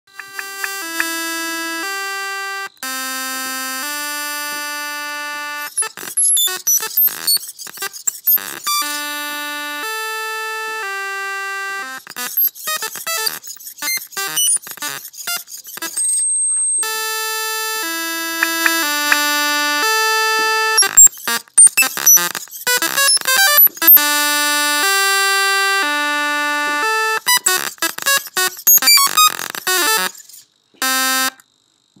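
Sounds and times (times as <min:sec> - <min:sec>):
long buzzy synthesized notes: 0:00.1 - 0:06.6, 0:07.8 - 0:13.4, 0:16.8 - 0:21.0, 0:24.0 - 0:30.1
fast erratic electronic bleeps: 0:04.1 - 0:16.2, 0:16.8 - 0:31.4.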